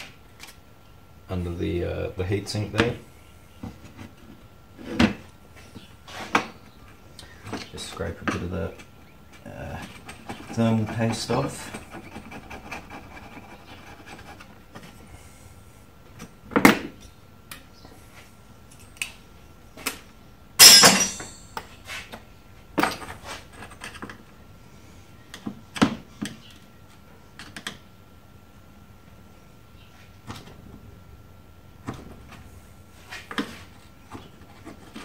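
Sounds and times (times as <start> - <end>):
metal parts and tools clattering: 20.6 - 21.6.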